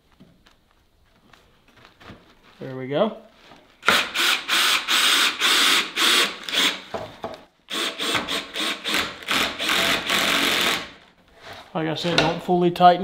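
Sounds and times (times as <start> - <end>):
cordless drill driving screws: 3.8 - 6.9, 7.7 - 11.0.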